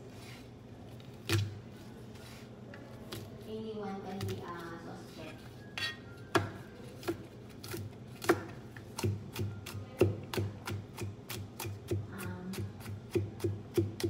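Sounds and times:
knife chopping on plastic board: 6.3s - 14.0s.

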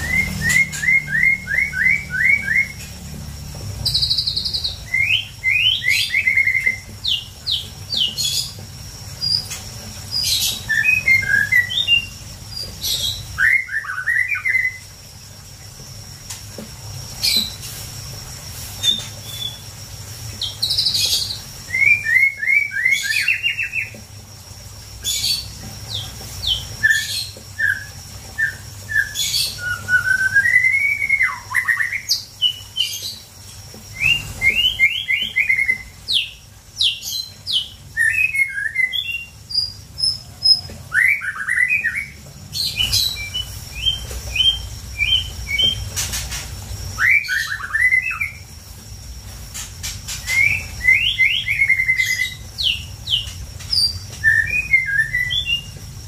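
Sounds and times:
bird singing whistled phrases: 0.0s - 2.9s, 10.4s - 12.2s, 12.9s - 14.8s, 20.8s - 23.9s, 26.6s - 32.6s, 37.6s - 40.2s, 40.9s - 45.8s, 47.0s - 48.4s, 50.2s - 55.8s.

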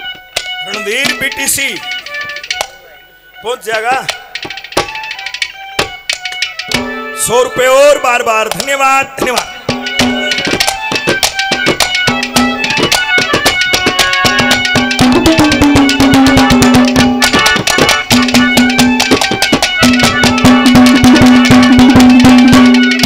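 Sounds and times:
sustained melodic notes: 0.0s - 23.0s
fast hand drum strokes: 8.4s - 23.0s.

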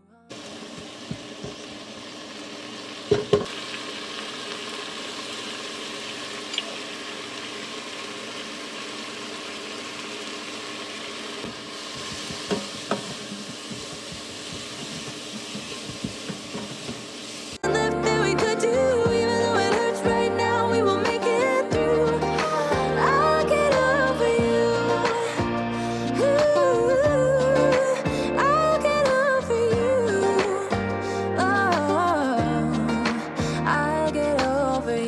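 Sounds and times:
vegetables sizzling in butter: 0.3s - 17.6s
utensil knocking on pan: 12.0s - 17.0s.

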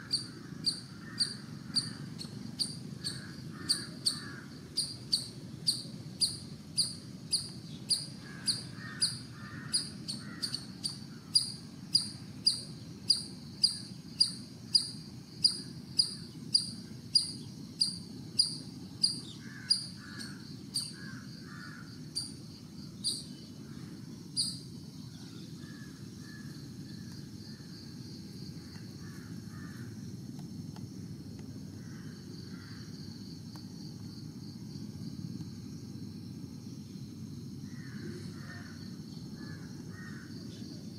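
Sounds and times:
faint lower chirping calls: 0.0s - 30.0s
cricket chirping: 0.0s - 40.9s
low steady rumble: 0.0s - 40.9s.

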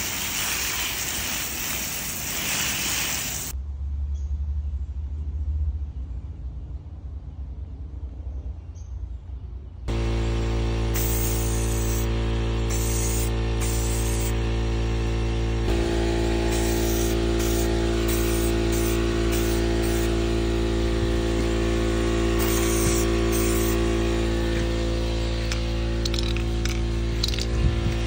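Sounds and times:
spray-paint can hissing: 0.0s - 3.6s, 11.0s - 14.4s, 16.5s - 20.4s, 21.3s - 24.2s, 25.4s - 27.4s.

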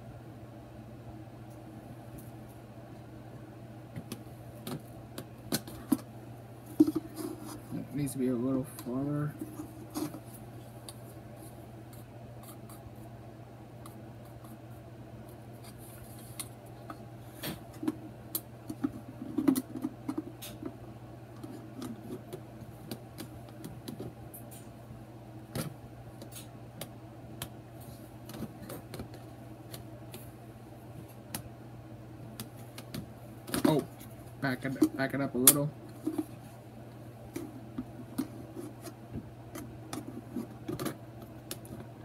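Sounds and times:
steady low hum: 0.0s - 42.0s
plastic parts clicking and rubbing: 39.6s - 41.9s.

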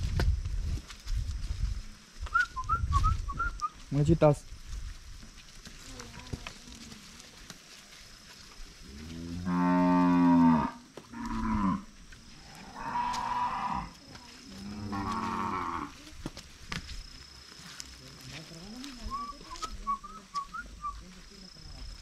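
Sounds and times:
cows mooing: 9.1s - 11.9s, 14.6s - 15.9s.

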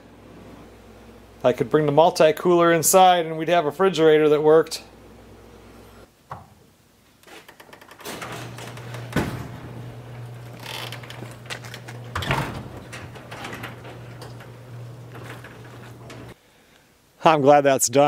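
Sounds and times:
door knocks and thumps: 8.0s - 9.8s
steady low hum: 8.5s - 16.6s.

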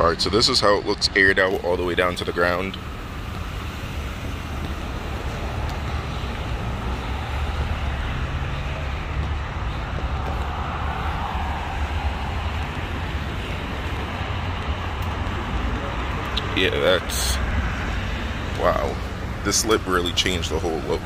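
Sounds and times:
road traffic rumble: 0.0s - 21.0s
vehicle passing: 0.0s - 21.0s.

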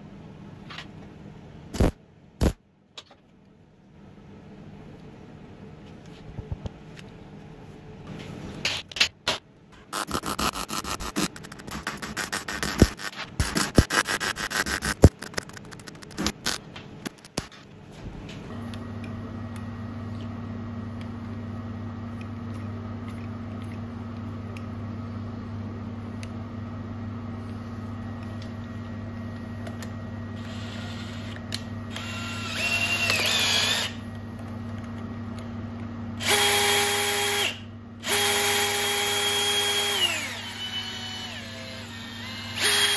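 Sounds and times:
steady low hum: 0.0s - 42.9s
metal parts clicking and rubbing: 10.0s - 17.5s
cordless drill whining: 30.4s - 34.0s, 36.2s - 42.9s.

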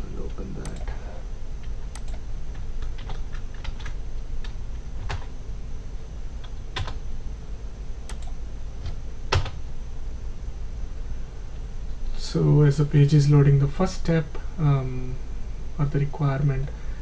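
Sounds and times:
low steady hum: 0.0s - 17.0s
computer keyboard keystrokes: 1.6s - 5.3s, 6.4s - 7.0s, 8.1s - 9.6s.

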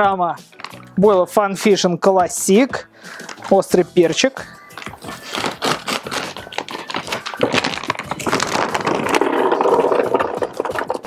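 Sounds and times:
hard baits rattling into hopper: 0.5s - 1.0s, 3.1s - 11.0s
plastic bag crackling open: 3.2s - 11.0s.

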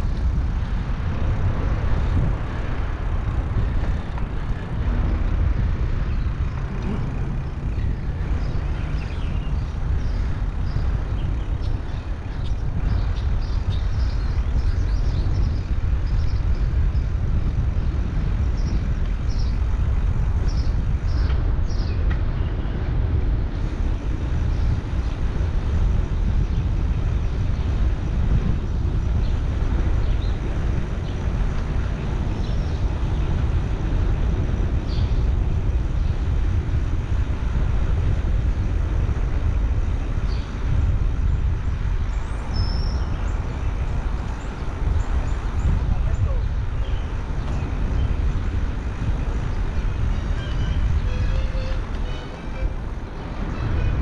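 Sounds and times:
wind buffeting microphone: 0.0s - 54.0s
birds chirping: 1.0s - 22.9s, 39.1s - 54.0s.

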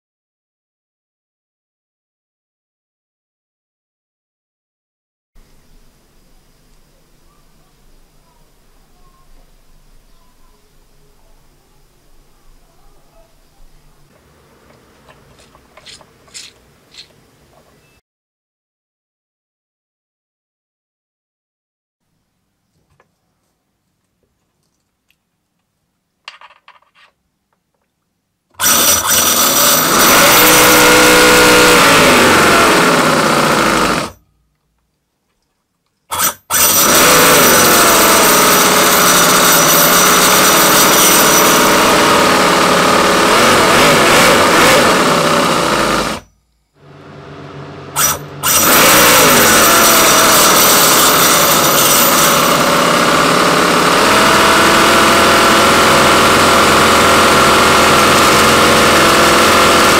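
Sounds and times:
model engine running loudly: 28.6s - 34.2s, 36.1s - 46.2s, 46.8s - 59.9s.

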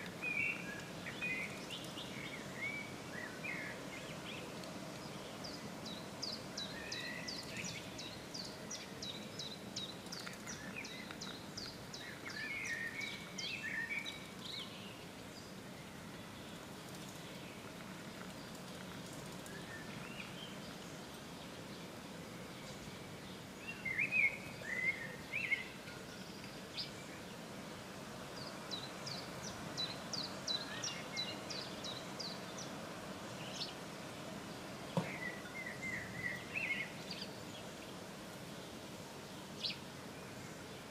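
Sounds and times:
songbirds singing: 0.0s - 40.9s.

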